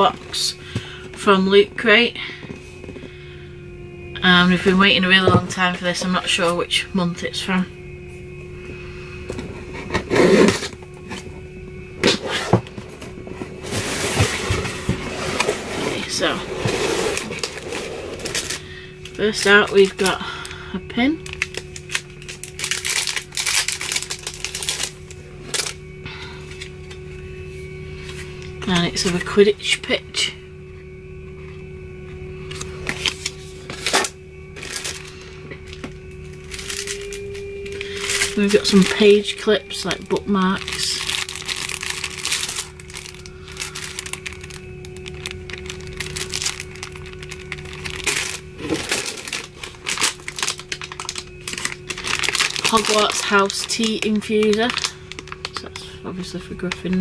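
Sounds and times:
faint steady hum: 0:00.0 - 0:57.0
packaging crinkling and rustling: 0:12.0 - 0:20.4, 0:21.1 - 0:25.9, 0:32.4 - 0:57.0.

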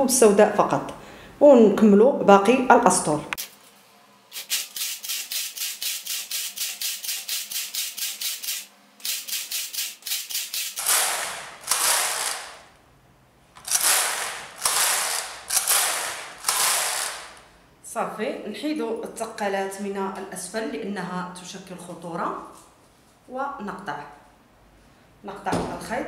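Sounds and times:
knitting machine carriage clicking: 0:10.4 - 0:12.6, 0:13.6 - 0:17.4.

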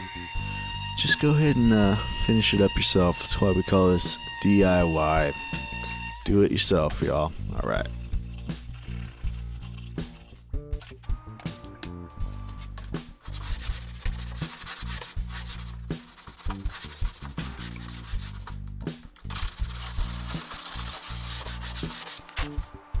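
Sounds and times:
sandpaper rubbing on wood: 0:00.0 - 0:10.5, 0:12.3 - 0:18.6, 0:19.2 - 0:22.8.

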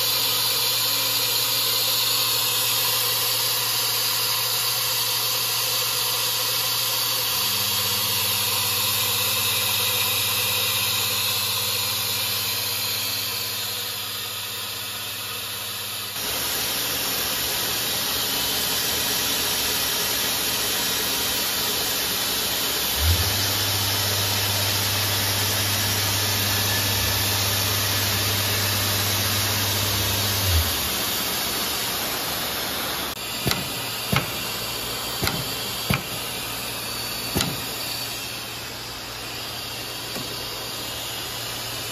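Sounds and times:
machinery hiss: 0:16.2 - 0:41.9.

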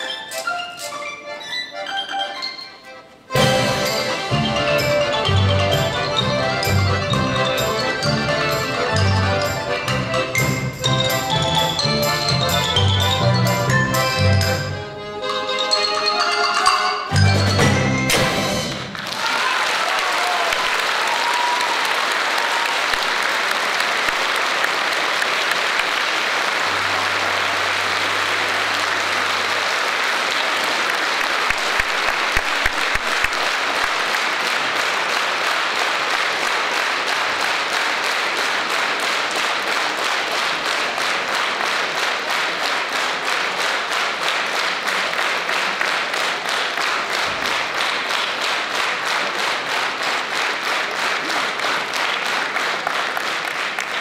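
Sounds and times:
rhythmic clapping: 0:03.3 - 0:54.0
audience applauding: 0:18.6 - 0:54.0.

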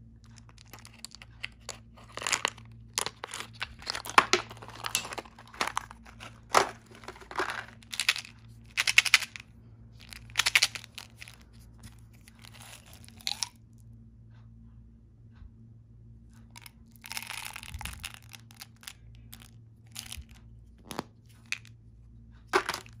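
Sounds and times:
candy packaging crackling and rattling: 0:00.2 - 0:09.4, 0:10.0 - 0:13.5, 0:16.6 - 0:20.4, 0:22.5 - 0:23.0
plastic cap clicking: 0:00.5 - 0:09.4.

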